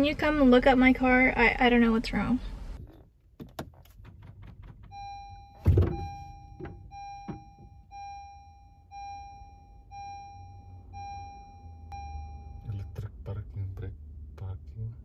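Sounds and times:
dashboard warning chime beeping: 0:04.7 - 0:13.3
loud thunk: 0:05.6 - 0:06.7.

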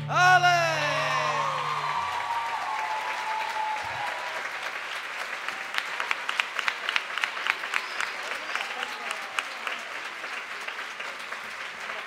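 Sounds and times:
band held notes: 0:00.0 - 0:01.8
audience applauding: 0:00.2 - 0:12.0.

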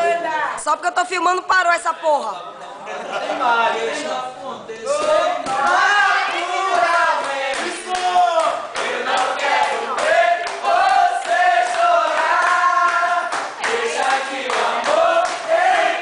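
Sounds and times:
group singing loudly: 0:04.9 - 0:16.0
hand claps: 0:07.2 - 0:16.0.

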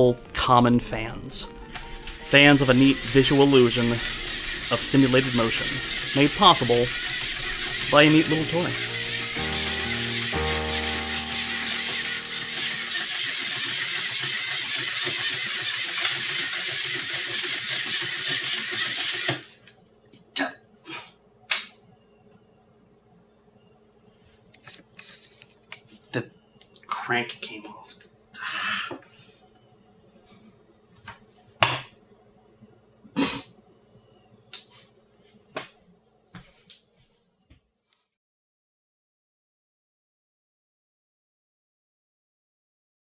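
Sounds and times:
hand-cranked projector clattering: 0:01.7 - 0:10.5, 0:11.2 - 0:19.4.

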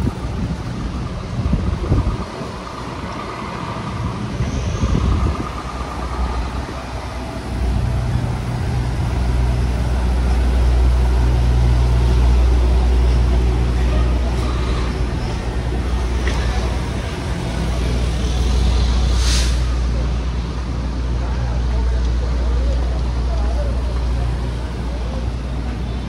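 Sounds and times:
wind buffeting microphone: 0:00.0 - 0:09.9
vehicle engine humming: 0:00.0 - 0:26.0.

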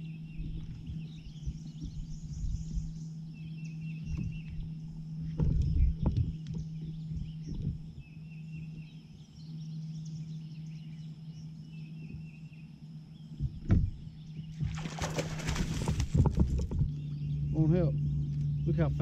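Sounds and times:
fish splashing in water: 0:14.6 - 0:16.6.

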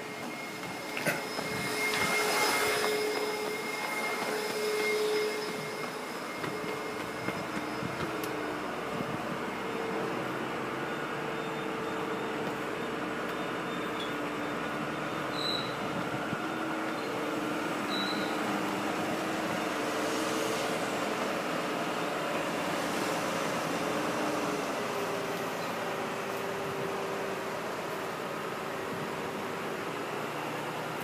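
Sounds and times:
crane truck engine and hydraulic drone: 0:00.0 - 0:27.2
hydraulic whining tones: 0:00.2 - 0:09.1.

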